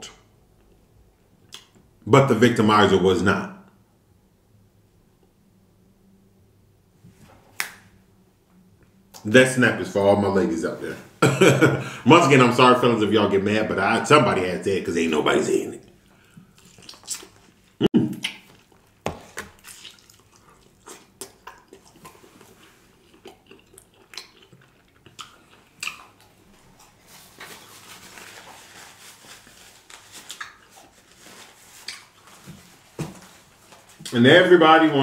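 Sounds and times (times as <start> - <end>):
wet chewing and lip smacking: 15.8 - 27.0, 30.3 - 30.9.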